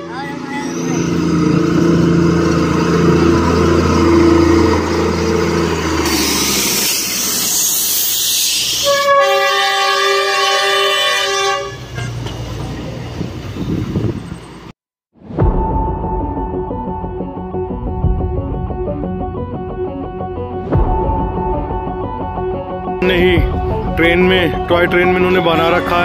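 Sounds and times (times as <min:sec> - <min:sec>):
coaches rumbling along track: 0:00.0 - 0:07.5, 0:10.4 - 0:14.7
diesel locomotive engine drone: 0:00.0 - 0:14.7
loud hiss: 0:06.0 - 0:09.1
train horn: 0:08.8 - 0:12.3.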